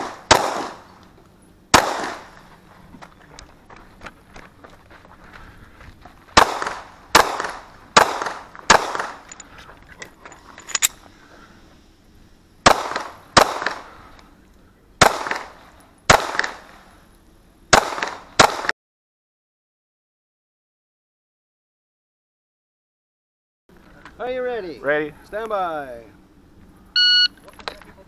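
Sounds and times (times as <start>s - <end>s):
pistol shots: 0.0s - 1.0s, 1.7s - 2.4s, 6.4s - 9.3s, 12.6s - 13.9s, 15.0s - 16.8s, 17.7s - 18.7s.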